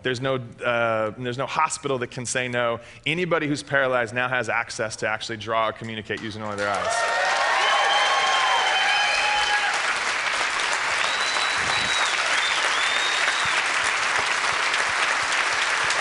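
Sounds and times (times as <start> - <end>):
audience applauding: 6.6 - 16.0
crowd cheering: 6.6 - 16.0
long whistles: 11.0 - 13.8.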